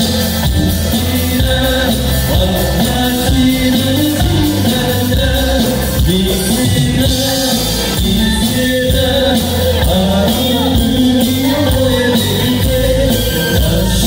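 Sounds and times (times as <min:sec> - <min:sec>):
amplified live band playing: 0:00.0 - 0:14.0
electric bass line: 0:00.0 - 0:14.0
person singing: 0:00.0 - 0:14.0.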